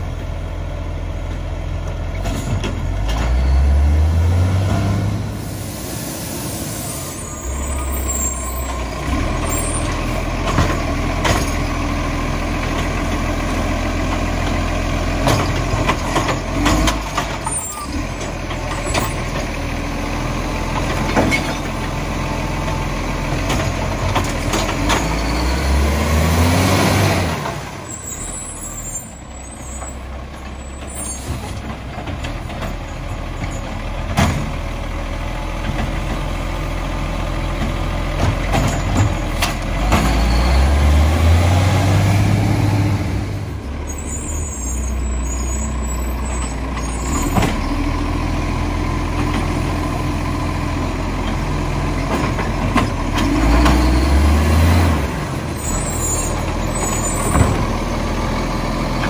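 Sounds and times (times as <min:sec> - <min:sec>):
garbage truck diesel engine revving: 0:02.1 - 0:59.0
air brakes hissing: 0:05.3 - 0:08.8.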